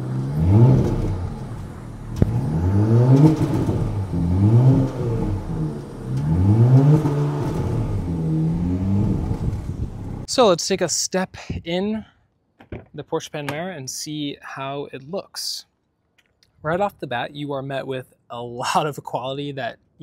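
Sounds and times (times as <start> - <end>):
car engine revving in blips: 0.0 - 10.3.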